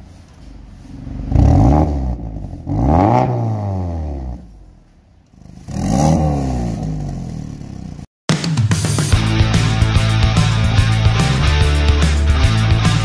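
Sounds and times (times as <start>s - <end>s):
car engine revving: 0.8s - 8.1s.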